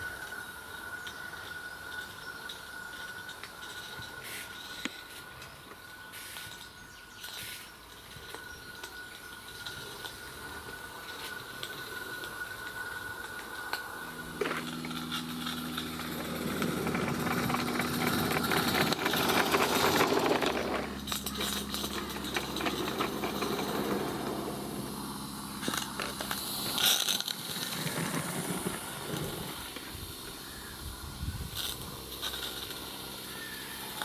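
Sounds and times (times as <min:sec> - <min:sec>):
wheels clattering on track: 0:08.2 - 0:30.4
steam locomotive chuffing: 0:11.9 - 0:30.8.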